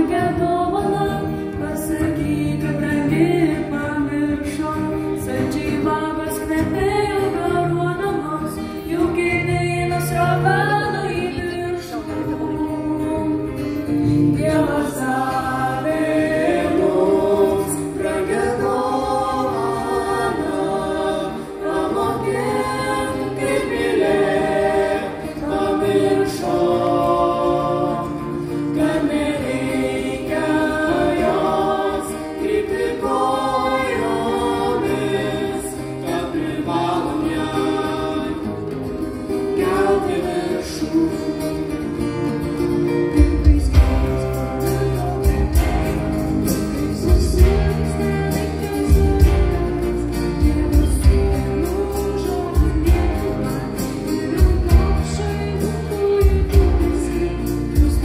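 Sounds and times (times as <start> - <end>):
guitars: 0.0 - 58.0
voices singing together: 0.0 - 58.0
steady bass line: 43.2 - 58.0.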